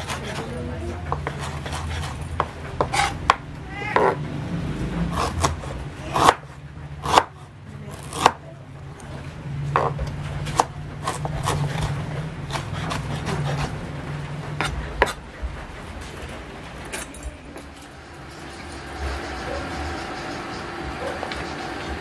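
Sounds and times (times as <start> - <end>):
steady low hum: 8.5 - 22.0.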